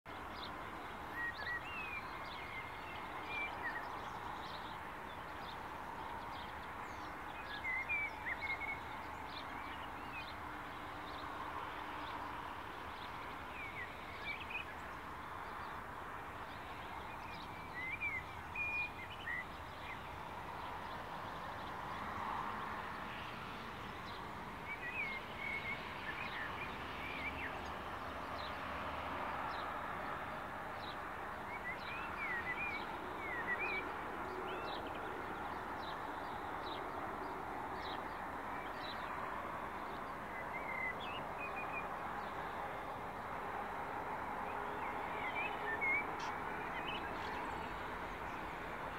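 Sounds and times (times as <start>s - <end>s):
distant background noise: 0.1s - 48.9s
bird chirping: 16.5s - 21.0s, 30.8s - 42.7s, 44.5s - 48.9s.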